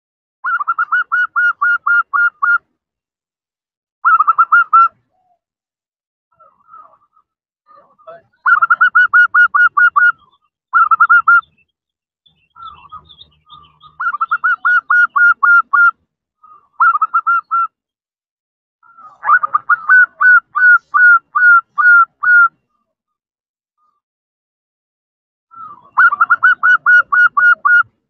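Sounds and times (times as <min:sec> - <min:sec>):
dove cooing: 0:12.5 - 0:17.7, 0:18.8 - 0:22.6, 0:25.6 - 0:27.9.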